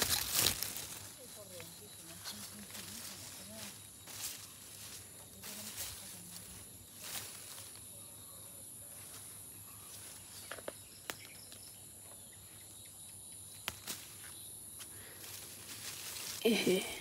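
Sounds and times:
hand moving among leaves: 0:00.0 - 0:07.8, 0:15.0 - 0:17.0
insects chirring: 0:00.0 - 0:17.0.

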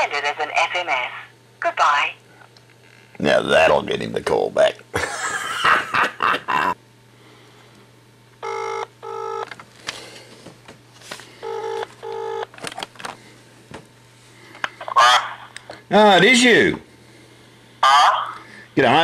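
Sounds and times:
faint steady hum: 0:00.0 - 0:19.0
telephone ringback tone: 0:08.4 - 0:09.5, 0:11.4 - 0:12.5.

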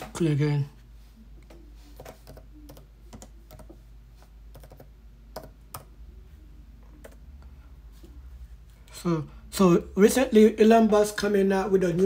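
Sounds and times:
keyboard and mouse clicks: 0:04.5 - 0:05.9.

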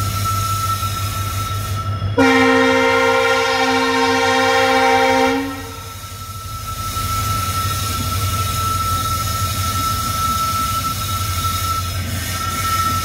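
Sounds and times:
train running rumble: 0:00.0 - 0:13.0
train wheel whine: 0:00.0 - 0:13.0
train horn blast: 0:02.2 - 0:06.0.

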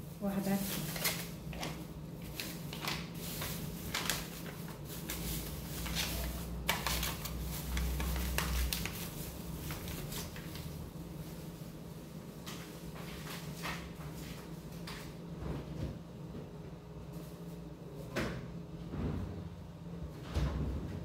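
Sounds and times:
plastic bag crinkling: 0:00.2 - 0:10.8.

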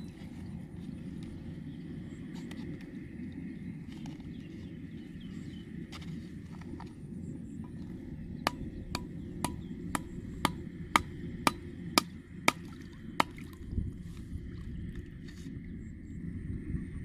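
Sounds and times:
hammer driving wooden stake: 0:07.7 - 0:13.4.

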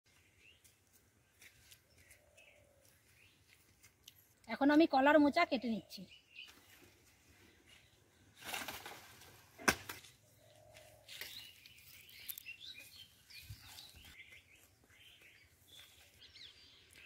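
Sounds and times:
dry leaves rustling: 0:10.8 - 0:14.6.

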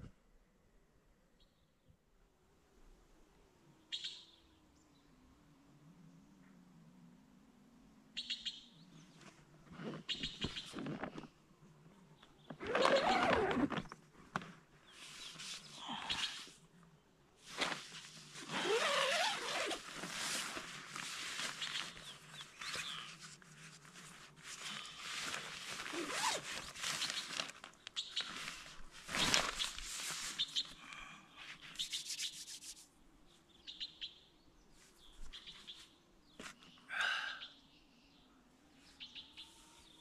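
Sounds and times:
nylon tent fabric rustling: 0:12.4 - 0:15.8, 0:17.4 - 0:30.7
tent door unzipping: 0:12.5 - 0:14.4, 0:17.5 - 0:21.6, 0:25.2 - 0:27.6.

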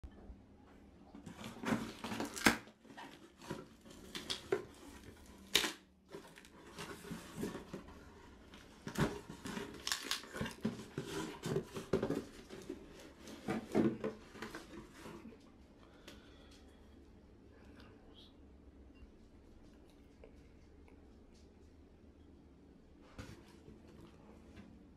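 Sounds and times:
cardboard box rustling and crackling: 0:01.2 - 0:05.5, 0:06.1 - 0:15.2.

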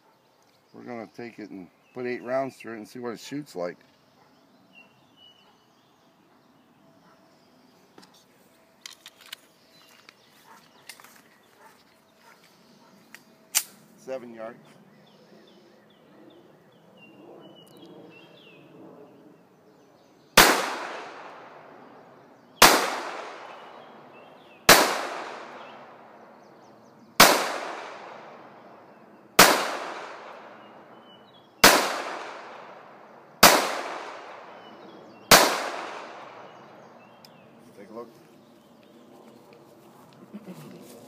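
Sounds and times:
pistol shots with echo: 0:20.4 - 0:22.0, 0:22.6 - 0:26.2, 0:27.2 - 0:31.0, 0:31.6 - 0:36.8.

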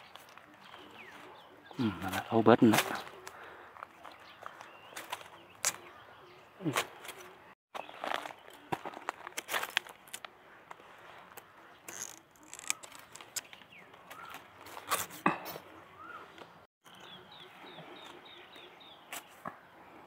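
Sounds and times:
small birds chirping: 0:00.0 - 0:09.4, 0:10.2 - 0:20.0
dry stems snapping and crackling: 0:08.1 - 0:10.4, 0:11.4 - 0:15.2.

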